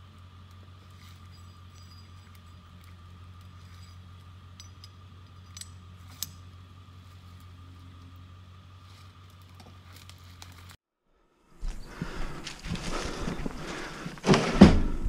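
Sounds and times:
steady low hum: 0.0 - 15.0
light metallic clinks: 0.9 - 6.5.

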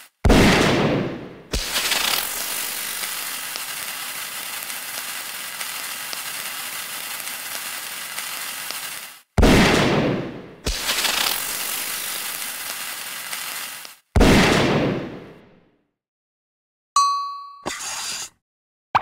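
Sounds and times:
loud burst: 0.3 - 3.6, 9.4 - 12.4
crackling hiss: 1.5 - 9.9, 10.6 - 14.1.

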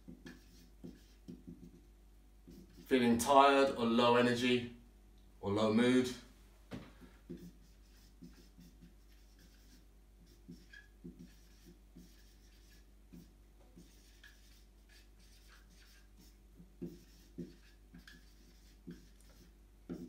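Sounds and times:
marker writing on whiteboard: 0.0 - 3.0, 7.3 - 20.0.

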